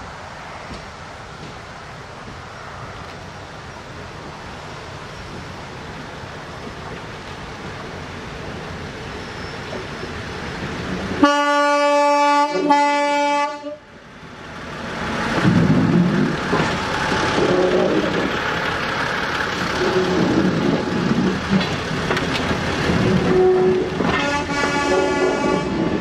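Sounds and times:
diesel train rumbling: 0.0 - 26.0
train horn blasts: 11.2 - 13.9, 23.1 - 26.0.

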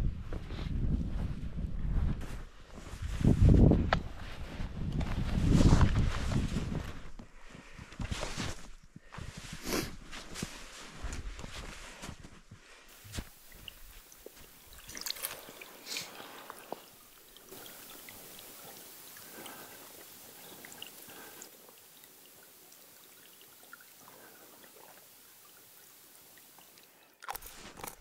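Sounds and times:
stream trickling: 12.9 - 28.0
water bottle being filled: 13.0 - 28.0.

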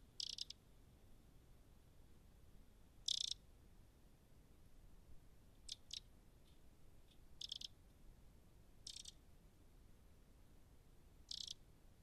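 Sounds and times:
wren rattling calls: 0.2 - 0.6, 3.0 - 3.4, 5.7 - 6.1, 7.4 - 7.7, 8.8 - 9.2, 11.3 - 11.6.

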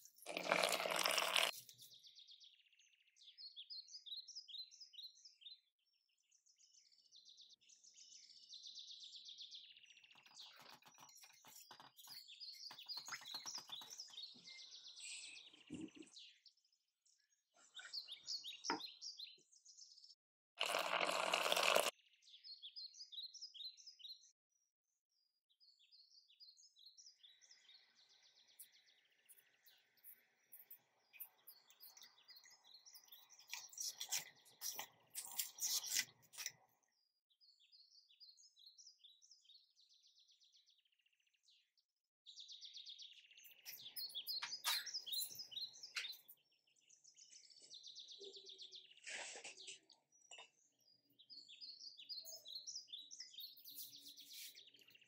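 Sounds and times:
small birds chirping: 0.0 - 55.0
boiling syrup hiss: 0.3 - 1.5, 20.6 - 21.9
spoon stirring in metal pot: 33.0 - 36.6.

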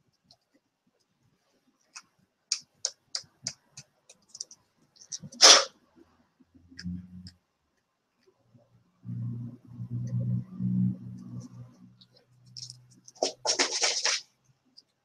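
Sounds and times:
short loud hiss: 5.4 - 5.7
brief low hum: 9.0 - 12.0.

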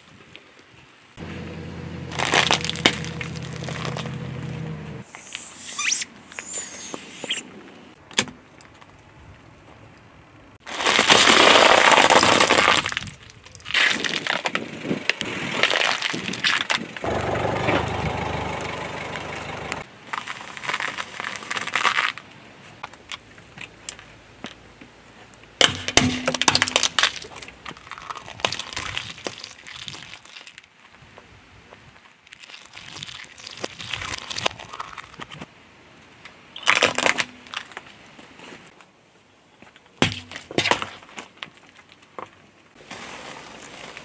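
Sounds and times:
tyre crushing objects on asphalt: 2.0 - 4.7, 10.6 - 14.8, 25.6 - 30.6.

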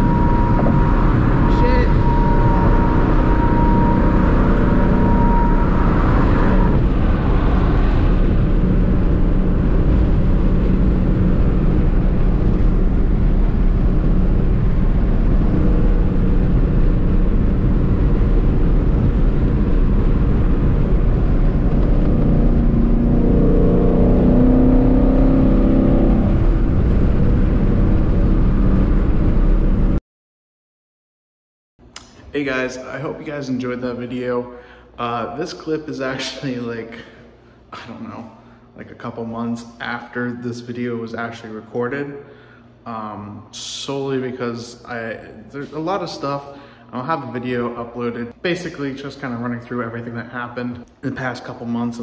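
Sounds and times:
car engine and road noise: 0.0 - 30.0.

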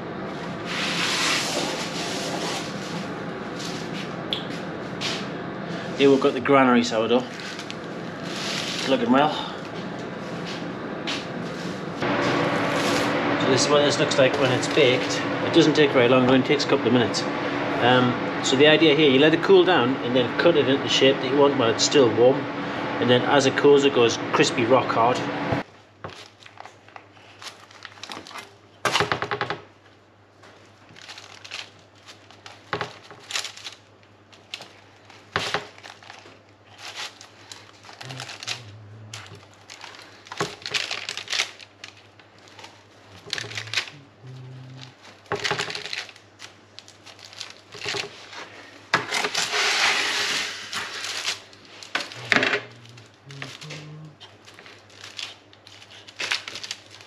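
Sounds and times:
low steady hum: 0.0 - 28.8, 29.8 - 49.6, 50.4 - 57.0
paper crinkling: 7.2 - 9.1, 26.1 - 29.1, 30.4 - 57.0.

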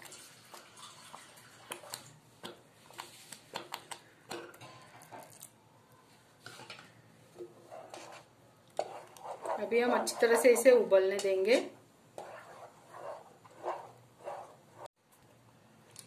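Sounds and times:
water pouring: 0.0 - 2.2.

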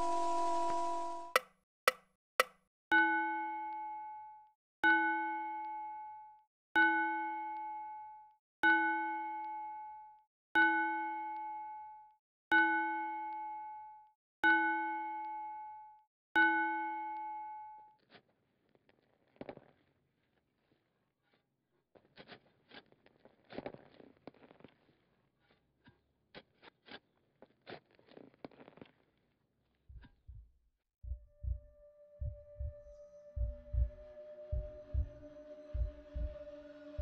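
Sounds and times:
bell-like chime: 0.0 - 1.4, 32.8 - 37.0.

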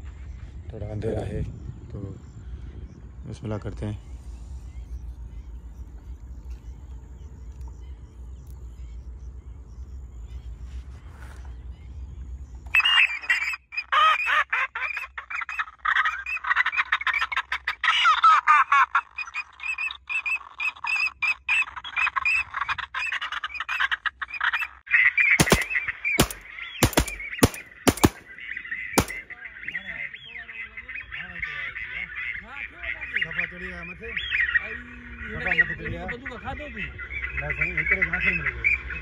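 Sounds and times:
electronic duck calls: 12.8 - 19.2
sharp bangs: 25.4 - 28.4, 29.0 - 29.3.

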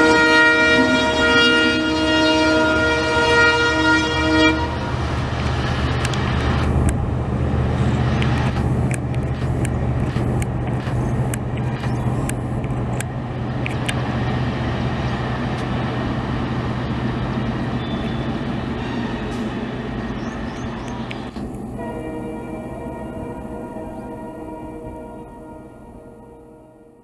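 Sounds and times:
train low hum and rumble: 0.0 - 27.0
train wheels clicking on rail joints: 5.2 - 21.8.

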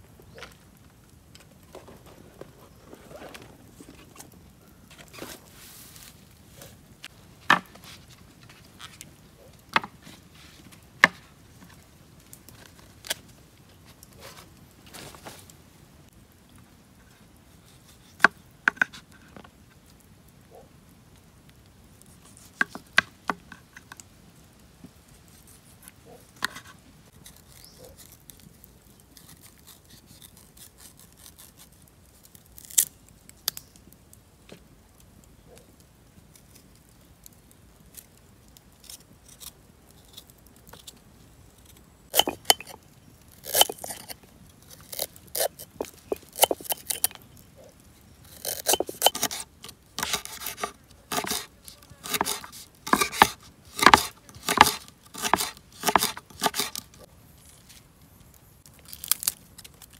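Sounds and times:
knife cutting and scraping root: 1.7 - 6.8, 22.2 - 23.0, 25.3 - 28.5, 29.2 - 32.9, 41.6 - 47.2, 48.2 - 57.8, 58.8 - 59.9.

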